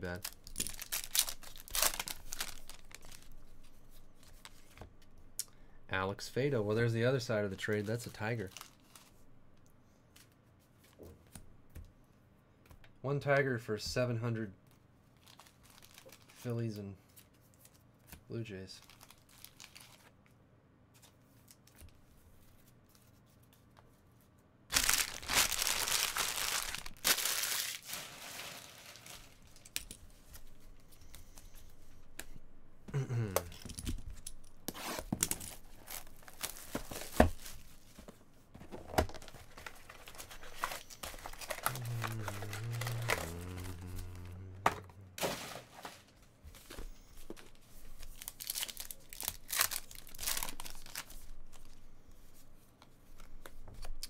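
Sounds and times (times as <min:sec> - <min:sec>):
packaging tearing and crinkling: 0:00.0 - 0:03.4, 0:15.2 - 0:16.4, 0:18.8 - 0:20.1, 0:24.7 - 0:29.8, 0:39.0 - 0:44.4, 0:48.0 - 0:51.8.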